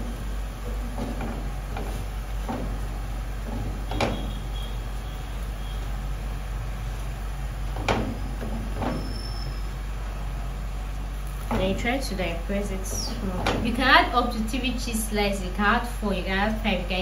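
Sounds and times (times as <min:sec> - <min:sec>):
spatula knocking: 0:07.7 - 0:09.1.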